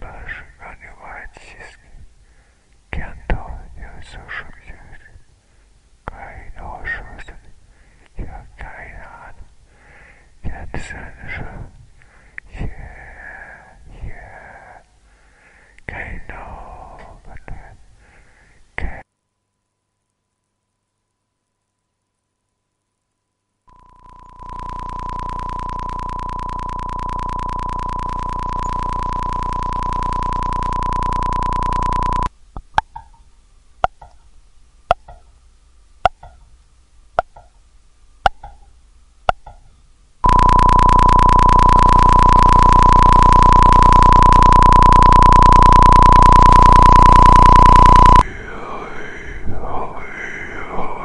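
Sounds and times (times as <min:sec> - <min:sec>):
buzzy high electronic tone: 0:23.7 - 0:32.3, 0:40.2 - 0:48.2
warbling electronic tones: 0:23.7 - 0:32.3, 0:40.2 - 0:48.2
sharp clicks: 0:23.7 - 0:32.8, 0:40.2 - 0:48.2.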